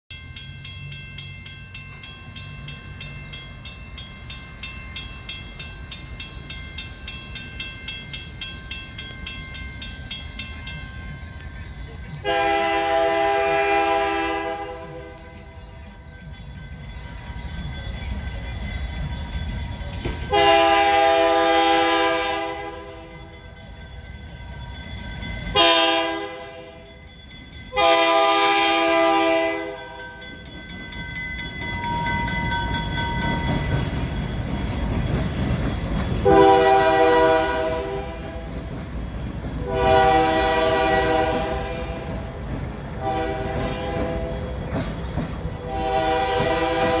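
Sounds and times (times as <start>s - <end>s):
locomotive air horn blasts: 12.2s - 15.2s, 20.3s - 23.1s, 25.6s - 26.7s, 27.8s - 29.8s, 36.2s - 38.5s, 39.6s - 42.2s, 43.0s - 44.4s, 45.6s - 47.0s.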